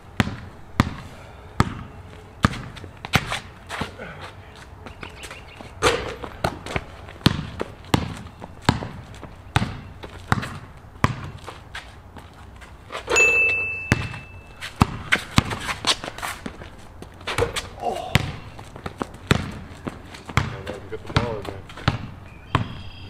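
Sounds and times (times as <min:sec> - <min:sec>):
basketball bouncing on concrete: 0:00.1 - 0:04.0, 0:04.8 - 0:12.4, 0:13.2 - 0:23.0
metallic clang of hoop: 0:13.1 - 0:14.5.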